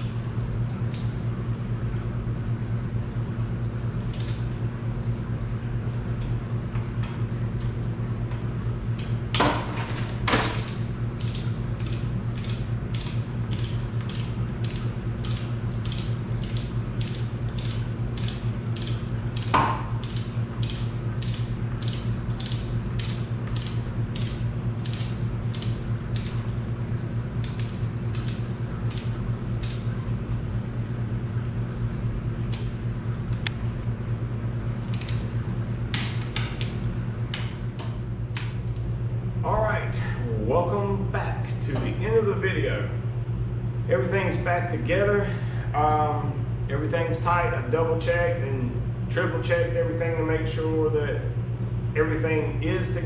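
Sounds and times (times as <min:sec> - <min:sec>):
steady low hum: 0:00.0 - 0:53.0
ratchet wrench clicking: 0:04.1 - 0:04.4, 0:11.2 - 0:26.4.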